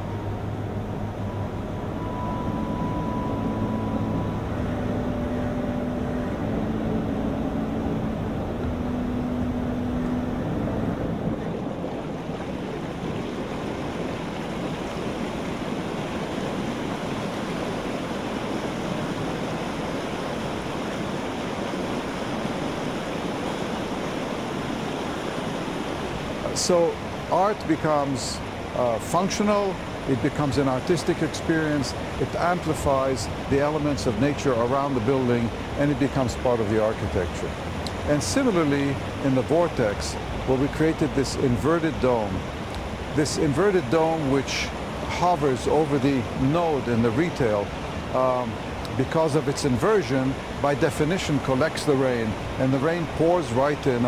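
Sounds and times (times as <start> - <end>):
low droning tones: 0.0 - 16.0
water rushing in whirlpool: 0.0 - 54.0.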